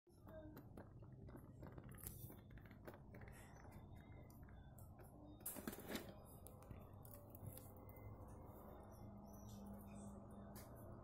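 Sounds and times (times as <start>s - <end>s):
small hard objects clicking: 0.2s - 8.1s.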